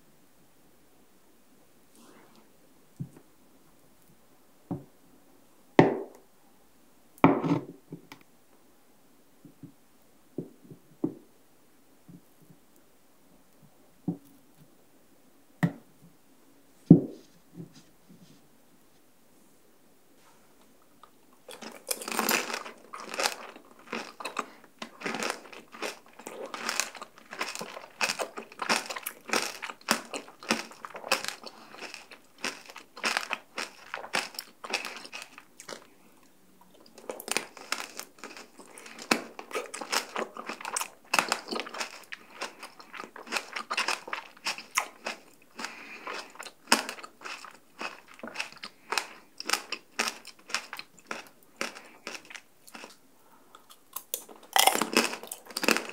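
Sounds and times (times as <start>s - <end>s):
crunching hard candy: 21.4s - 35.9s, 36.8s - 53.0s, 53.6s - 55.9s
wet chewing: 21.4s - 35.9s, 36.7s - 55.9s.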